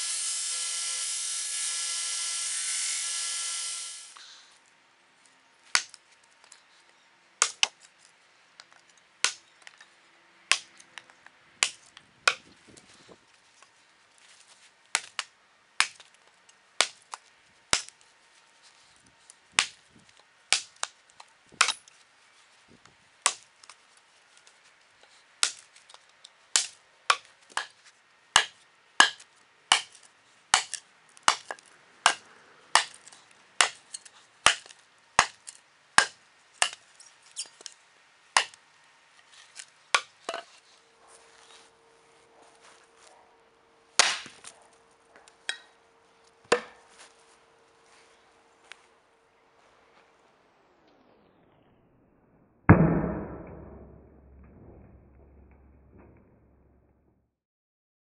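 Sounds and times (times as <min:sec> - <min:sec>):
belt grinder running: 0:00.0 - 0:04.2
tomahawk chopping into wood: 0:28.4 - 0:32.2, 0:32.8 - 0:33.0, 0:33.6 - 0:36.8, 0:38.4 - 0:38.6, 0:44.0 - 0:44.5, 0:46.4 - 0:46.8.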